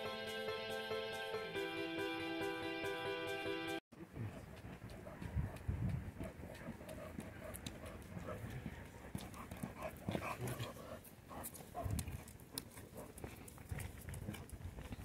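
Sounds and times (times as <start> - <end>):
shuffling footsteps on concrete: 4.2 - 15.0
dog claws clicking: 11.3 - 15.0.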